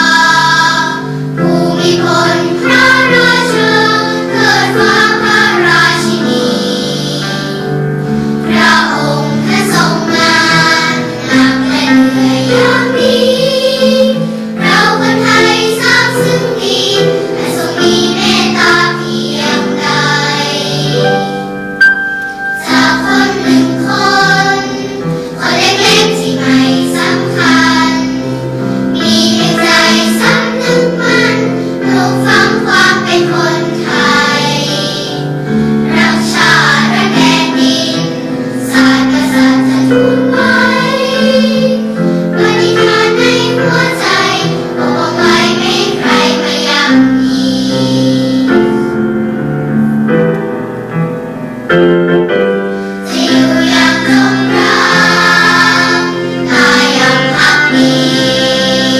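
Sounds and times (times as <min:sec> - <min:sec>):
girls' choir singing: 0:00.0 - 0:49.1, 0:52.7 - 0:58.9
low held accompaniment notes: 0:16.0 - 0:28.1.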